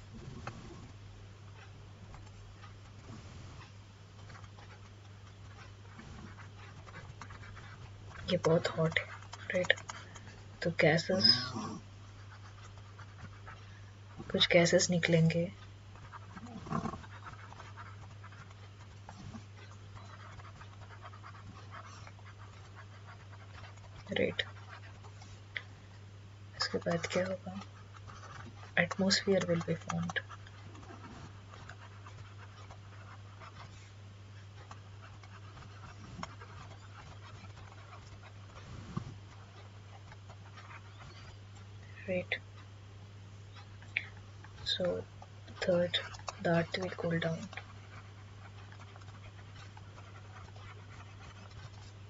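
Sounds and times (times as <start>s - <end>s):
stylus scratching on tablet: 0.0s - 42.8s, 43.4s - 52.0s
low electrical hum: 0.0s - 52.0s
faint breathing: 3.0s - 3.8s
person speaking: 8.2s - 9.9s, 10.6s - 11.8s, 14.2s - 15.6s, 24.0s - 24.6s, 26.6s - 27.7s, 28.8s - 30.4s, 41.9s - 42.4s, 43.9s - 47.6s.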